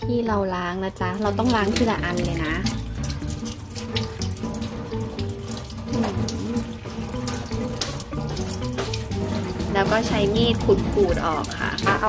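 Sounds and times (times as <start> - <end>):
tap water running into sink: 0.9 - 12.0
water splashing: 1.0 - 12.0.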